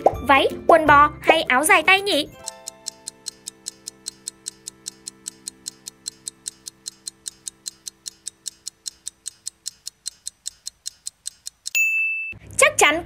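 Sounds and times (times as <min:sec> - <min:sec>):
clock ticking rapidly: 0:02.1 - 0:11.8.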